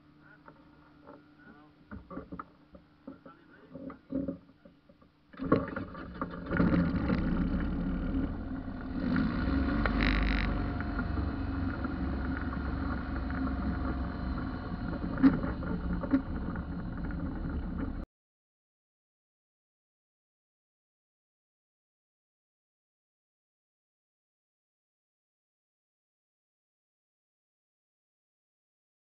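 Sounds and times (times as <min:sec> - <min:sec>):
propeller engine running: 0:06.5 - 0:18.0.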